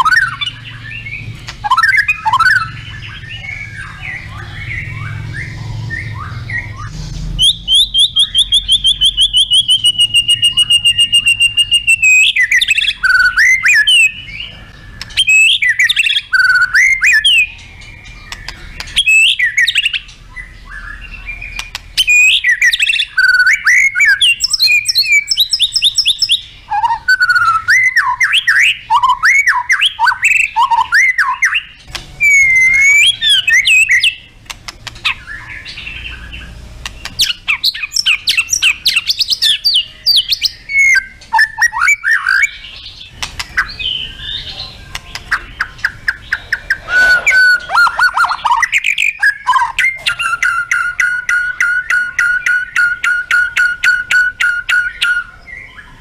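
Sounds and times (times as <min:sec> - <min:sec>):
bird singing trills and whistles: 0:00.0 - 0:56.0.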